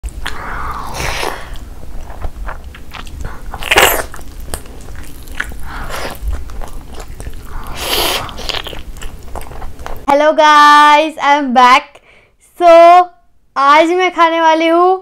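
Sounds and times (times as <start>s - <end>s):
small mouth clicks: 0.1s - 10.1s
close-miked chewing: 1.1s - 10.1s.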